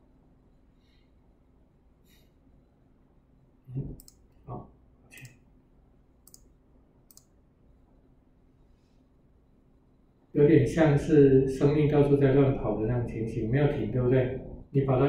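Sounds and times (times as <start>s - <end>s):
computer mouse clicking: 4.0s - 4.3s, 5.1s - 5.4s, 6.2s - 6.5s, 7.1s - 7.3s.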